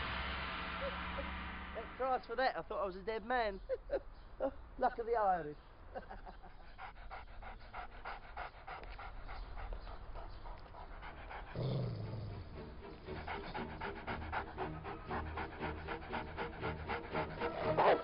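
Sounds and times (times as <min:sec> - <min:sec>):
dog panting fast: 0:06.3 - 0:18.0.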